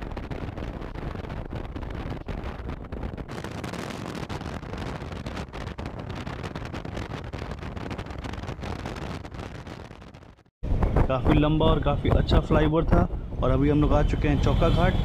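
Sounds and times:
wind buffeting microphone: 0.0s - 15.0s
road noise: 10.6s - 15.0s.

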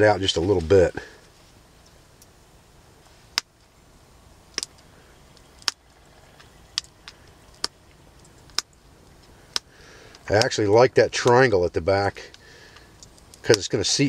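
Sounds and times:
stone flakes snapping off: 4.5s - 10.5s.

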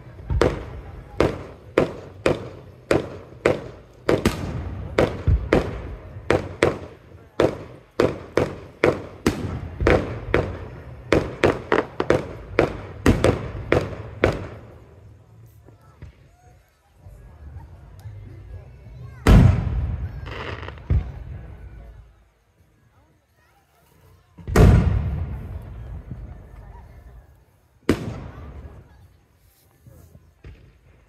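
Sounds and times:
fireworks bangs echoing: 0.0s - 15.2s, 19.2s - 21.9s, 24.4s - 27.1s, 27.8s - 29.1s, 29.8s - 31.0s.

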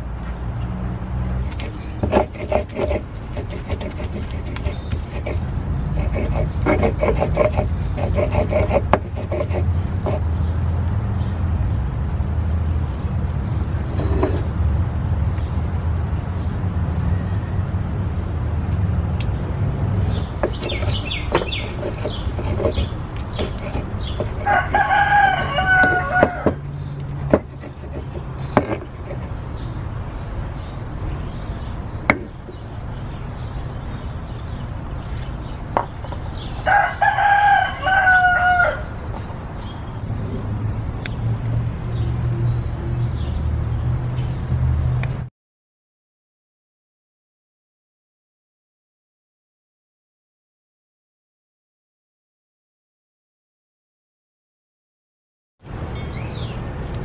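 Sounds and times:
rooster crowing: 24.4s - 26.7s, 36.6s - 39.0s
sharp knocks: 25.2s - 29.3s, 32.1s - 32.6s.

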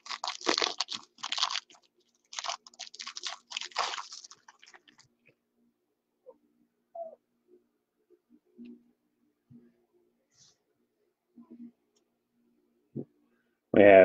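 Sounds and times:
foil wrapper crinkling and tearing: 0.0s - 5.1s.

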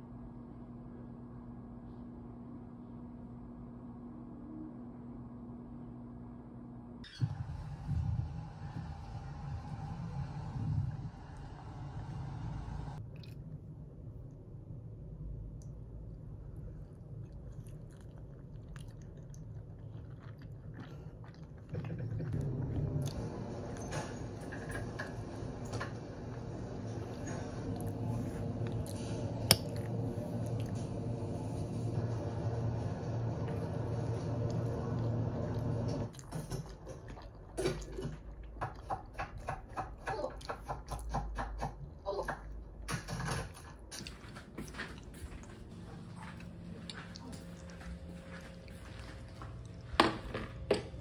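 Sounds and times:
steady low hum: 0.0s - 39.6s, 41.7s - 51.0s
person chewing dumplings: 13.0s - 14.3s, 15.6s - 23.9s, 27.0s - 31.3s, 34.4s - 39.8s, 43.5s - 50.0s
chewing and wet mouth clicks: 13.1s - 13.7s, 16.9s - 23.2s, 27.8s - 30.8s.

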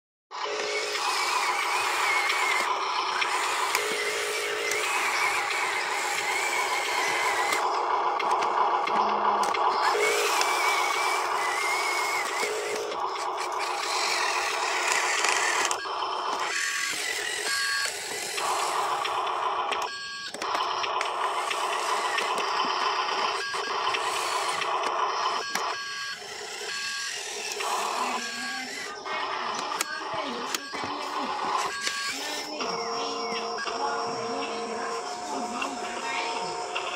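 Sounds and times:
toy truck electric motor whining: 0.3s - 36.9s.

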